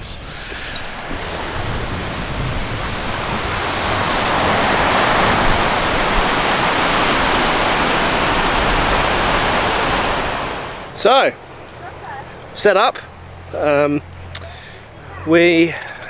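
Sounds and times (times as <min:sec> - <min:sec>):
ocean surf breaking on beach: 0:00.0 - 0:11.2.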